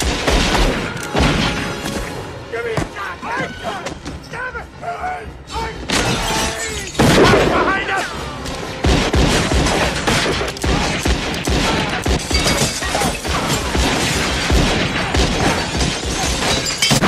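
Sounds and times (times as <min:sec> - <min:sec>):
gunshots: 0:00.0 - 0:02.1, 0:08.7 - 0:17.0
window glass shattering: 0:12.2 - 0:13.2, 0:16.1 - 0:17.0.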